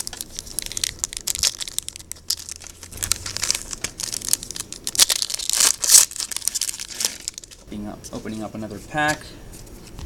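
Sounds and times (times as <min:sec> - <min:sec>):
foil wrappers crinkling: 0:00.0 - 0:07.6.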